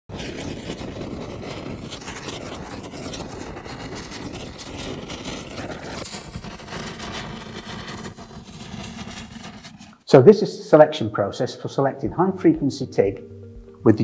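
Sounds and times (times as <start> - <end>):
rumbling crackling noise: 0.1 - 10.0.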